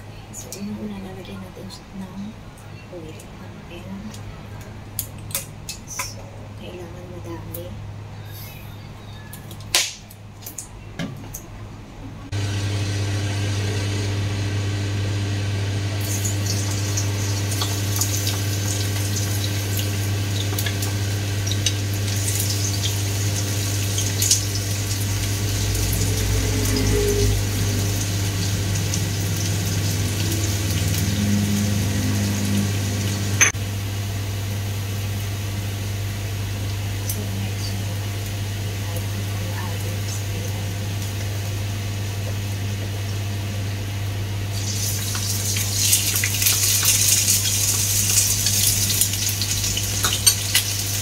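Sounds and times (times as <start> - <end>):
range hood fan humming: 0.0 - 51.0
onions sizzling in hot oil: 12.4 - 33.5, 44.4 - 51.0.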